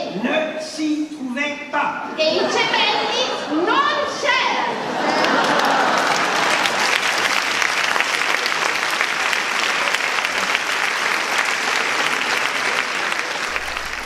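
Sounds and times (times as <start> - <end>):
audience applauding: 4.8 - 14.0.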